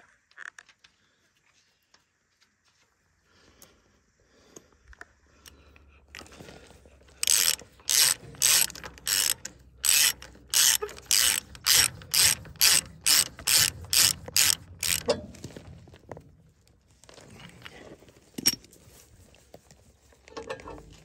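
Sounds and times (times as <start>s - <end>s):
hand ratchet clicking: 7.1s - 15.6s.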